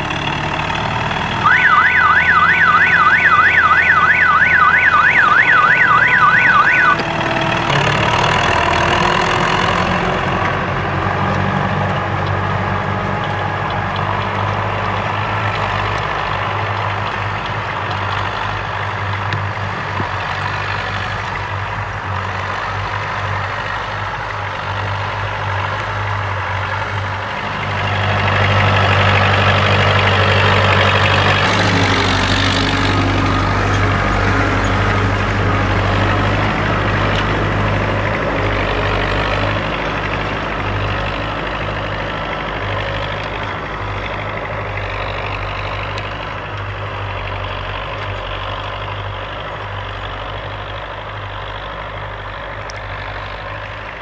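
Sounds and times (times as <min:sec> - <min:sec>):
tractor diesel engine running: 0:00.0 - 0:54.0
warbling alarm tone: 0:01.4 - 0:07.0.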